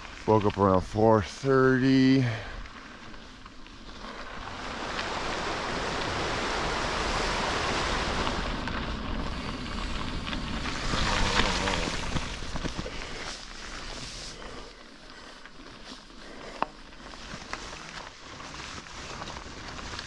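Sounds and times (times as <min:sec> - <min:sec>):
tyres rolling on gravel: 0:00.0 - 0:20.0
wind on microphone: 0:04.4 - 0:13.0.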